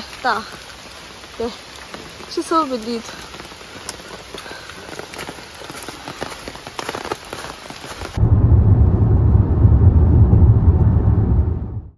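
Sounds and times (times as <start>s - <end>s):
rain drop ticks: 0.0s - 8.2s
rain falling: 0.0s - 11.9s
road rumble inside car: 8.2s - 11.9s.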